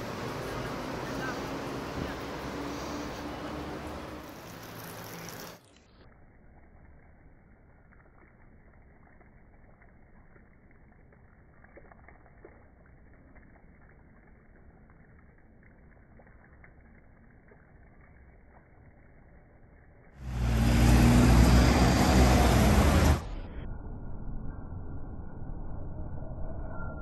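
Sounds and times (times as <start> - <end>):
fountain water splashing: 0.0 - 23.3.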